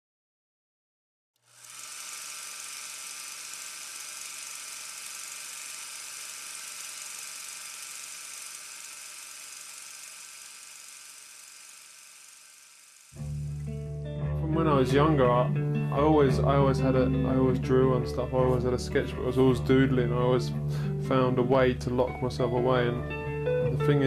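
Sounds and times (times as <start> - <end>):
mechanical whir with hiss: 1.5 - 13.3.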